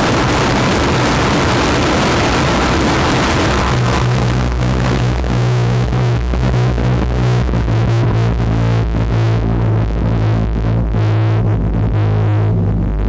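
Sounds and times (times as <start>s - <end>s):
harsh electronic noise: 0.0s - 13.0s
low drone: 0.0s - 13.0s.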